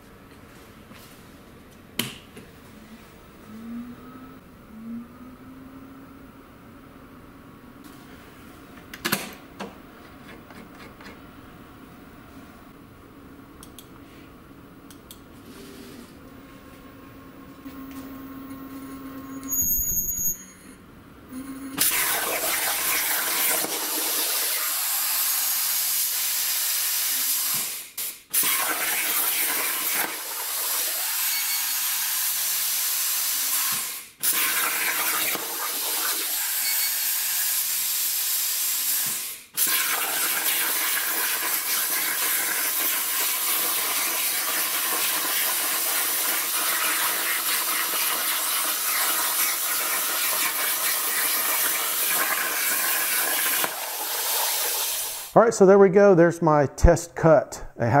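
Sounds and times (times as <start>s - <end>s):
plasma cutter hissing: 21.8s - 55.3s.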